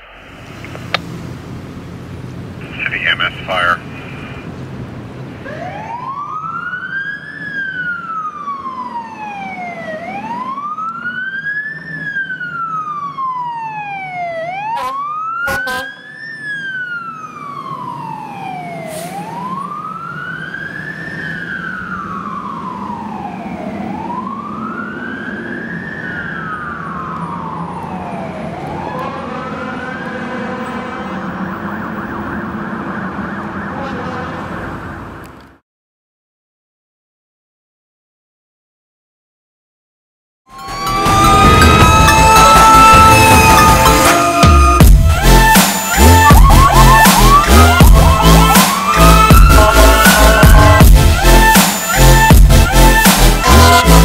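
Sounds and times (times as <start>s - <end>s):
truck engine running: 0.0s - 5.4s, 40.6s - 54.0s
fire engine siren wailing: 5.2s - 35.3s, 40.5s - 54.0s.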